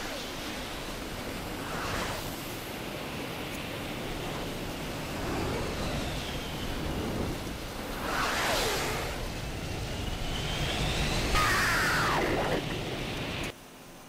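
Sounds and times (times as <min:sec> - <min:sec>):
jet cockpit airflow and engine: 0:00.0 - 0:13.6
whine sweeping down in pitch: 0:08.0 - 0:13.5.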